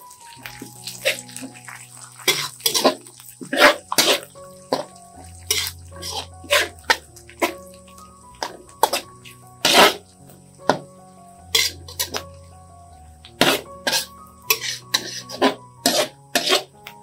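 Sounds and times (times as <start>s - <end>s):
spatula scraping metal wok: 0.8s - 7.6s, 8.3s - 10.1s, 11.5s - 12.3s, 13.3s - 16.8s.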